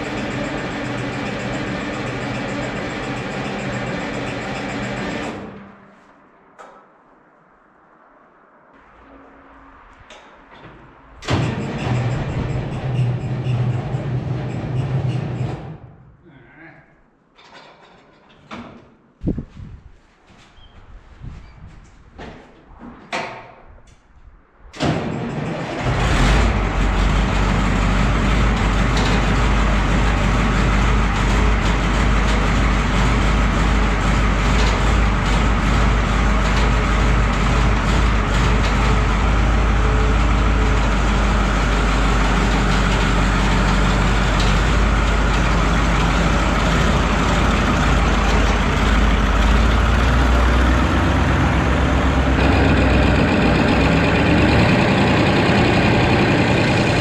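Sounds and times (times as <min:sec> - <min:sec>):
diesel engine idling: 0:25.9 - 0:57.0
starter motor cranking: 0:52.4 - 0:57.0.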